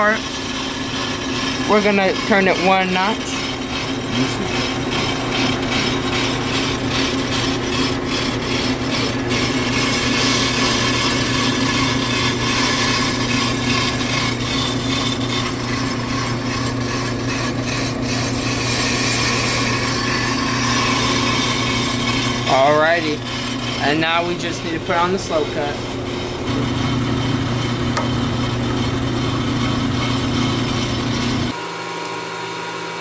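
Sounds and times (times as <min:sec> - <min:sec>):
metal cutting scraping hiss: 0:00.0 - 0:26.1
brake lathe motor hum: 0:00.0 - 0:33.0.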